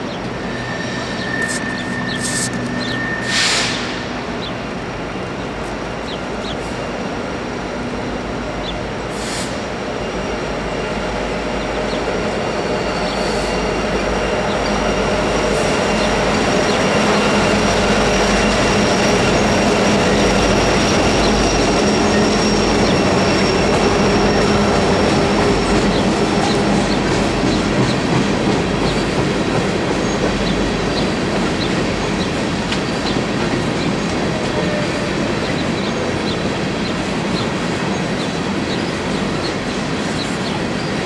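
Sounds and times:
thin high tone: 0.4 - 3.9.

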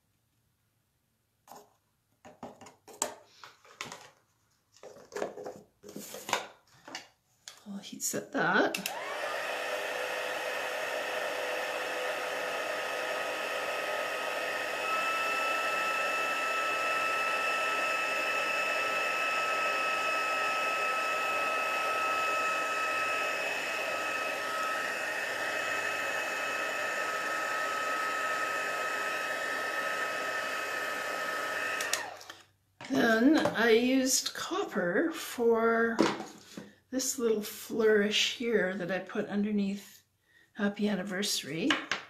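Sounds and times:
heat gun blowing hot air: 8.8 - 32.4.

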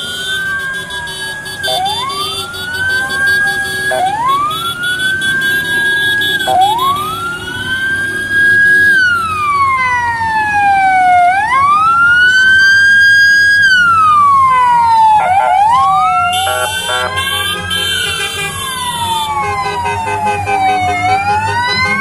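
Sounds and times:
siren wailing: 0.0 - 22.0
steady horn-like tones: 15.2 - 22.0.

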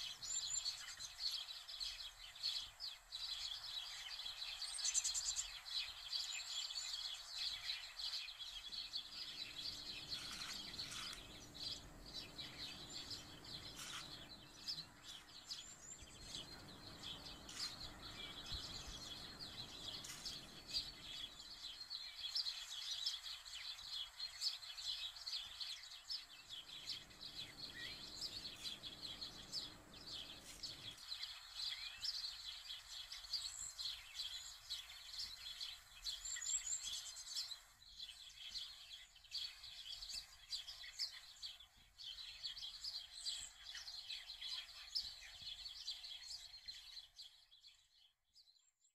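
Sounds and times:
birds chirping: 0.0 - 47.4.

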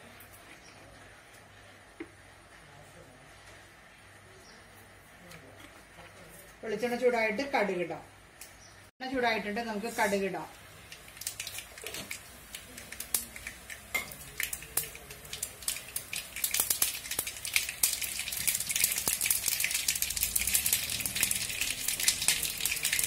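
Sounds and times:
oil sizzling: 9.2 - 23.0
mustard seeds popping in oil: 10.5 - 23.0.

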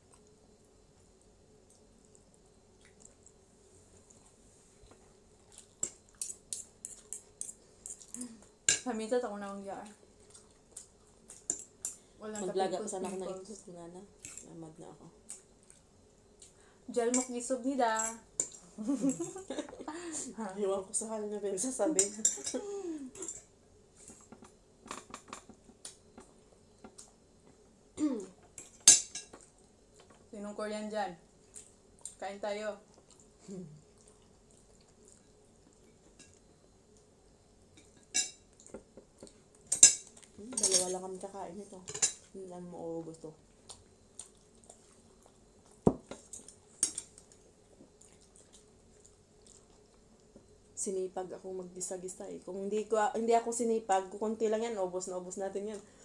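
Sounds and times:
cutlery clatter: 39.7 - 41.0
cutlery clinking against plates: 39.7 - 41.0, 41.9 - 42.2, 46.1 - 47.1.

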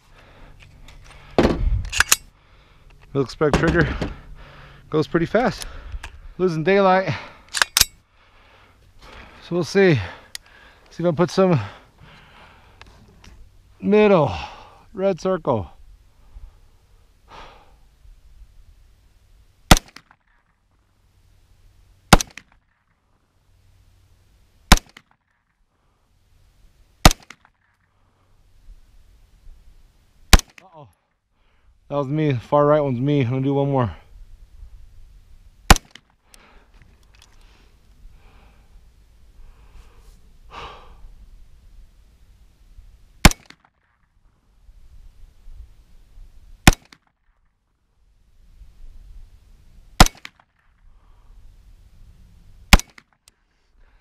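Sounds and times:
faint breathing: 0.0 - 3.1, 3.8 - 6.4, 7.1 - 13.5, 14.2 - 15.0, 16.0 - 18.0, 27.8 - 28.8, 30.9 - 31.9, 36.2 - 41.3, 50.8 - 51.7, 53.4 - 54.0
pistol shots: 19.7 - 20.1, 22.1 - 22.5, 24.7 - 25.0, 27.0 - 27.5, 30.3 - 30.6, 35.7 - 36.0, 43.2 - 43.7, 46.6 - 47.0, 50.0 - 50.4, 52.7 - 53.1.

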